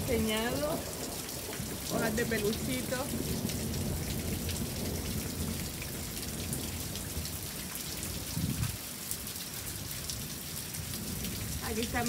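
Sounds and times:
steady rain: 0:00.0 - 0:12.0.

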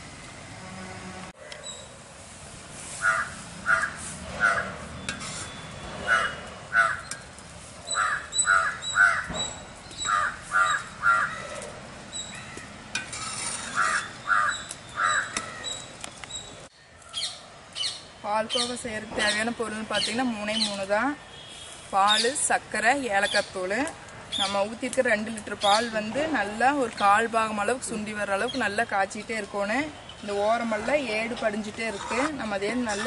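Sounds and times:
crows cawing: 0:03.0 - 0:04.7, 0:06.1 - 0:07.1, 0:08.0 - 0:09.3, 0:10.0 - 0:11.6, 0:13.8 - 0:15.7.

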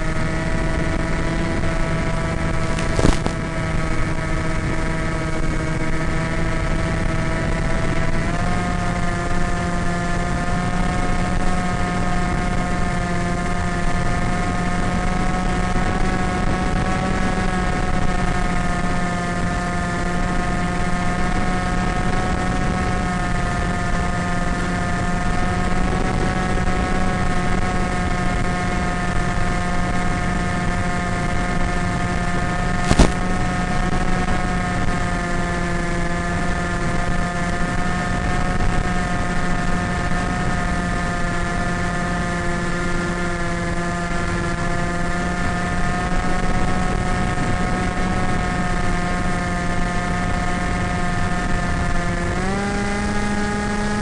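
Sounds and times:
electric motor and propeller whine: 0:00.0 - 0:54.0.

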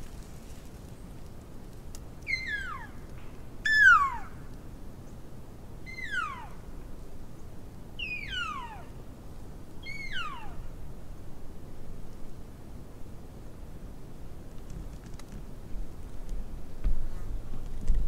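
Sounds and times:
elk cow calls: 0:03.7 - 0:04.4, 0:05.9 - 0:06.6, 0:08.0 - 0:08.9.

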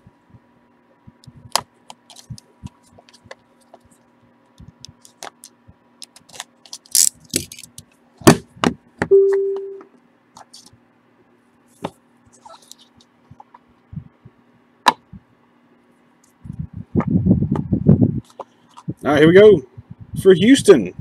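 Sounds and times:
steady low tone: 0:09.1 - 0:09.9.

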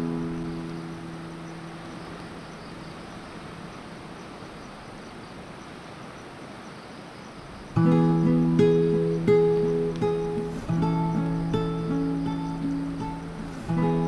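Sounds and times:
guitar chord: 0:00.0 - 0:01.9, 0:07.8 - 0:14.0
surf from breaking waves: 0:00.0 - 0:14.0
acoustic guitar strum: 0:07.8 - 0:14.0.

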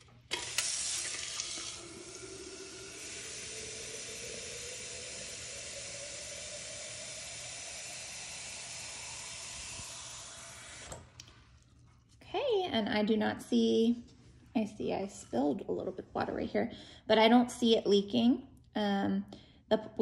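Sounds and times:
water filling a plastic bottle: 0:00.2 - 0:11.3.

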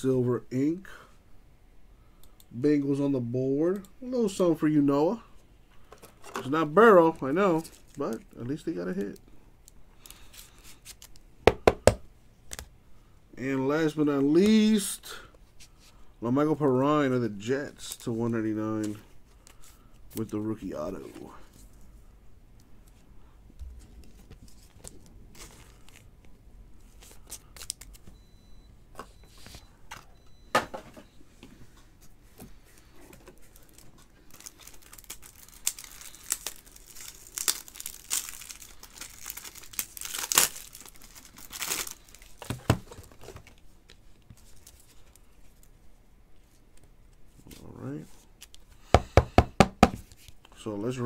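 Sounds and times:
plastic sleeve crinkling: 0:32.8 - 0:43.7.

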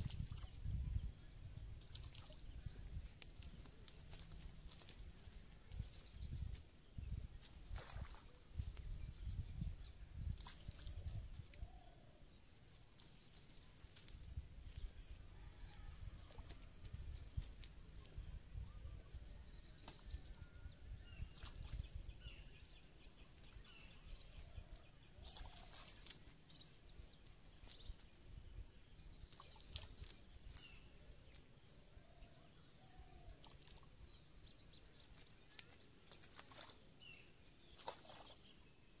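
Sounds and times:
low wind rumble: 0:00.0 - 0:07.7
net rustling in grass: 0:02.9 - 0:06.7.

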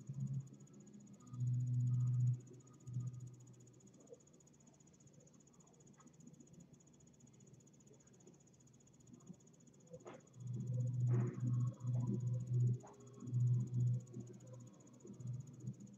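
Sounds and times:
low hum: 0:10.3 - 0:15.9.

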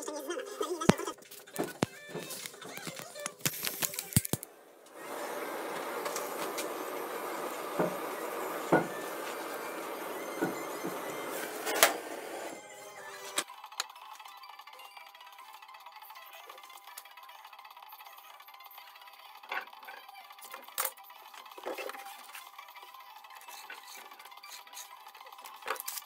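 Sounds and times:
heat gun blowing: 0:03.4 - 0:13.4.

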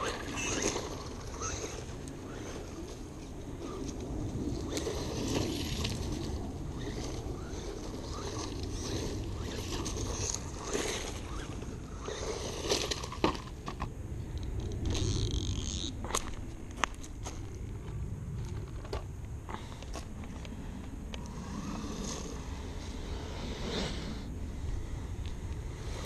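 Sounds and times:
toy truck rushing over dirt: 0:00.0 - 0:13.9, 0:14.5 - 0:16.4, 0:21.2 - 0:24.3, 0:25.7 - 0:26.0.

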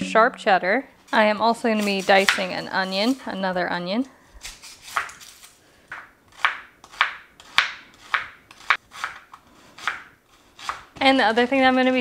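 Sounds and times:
knife chopping on plastic cutting board: 0:05.9 - 0:10.9.

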